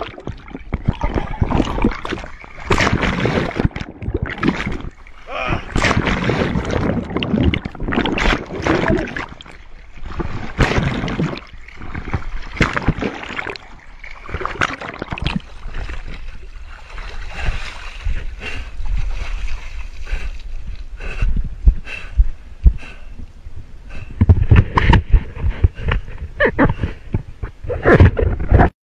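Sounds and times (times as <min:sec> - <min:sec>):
muffled underwater gurgling: 0:00.0 - 0:13.7
water splashing: 0:00.0 - 0:20.8.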